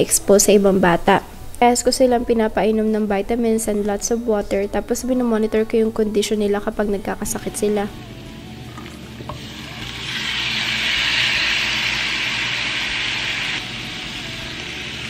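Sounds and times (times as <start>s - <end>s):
garlic sizzling in oil: 8.7s - 15.0s
chicken sizzling in a frying pan: 9.2s - 15.0s.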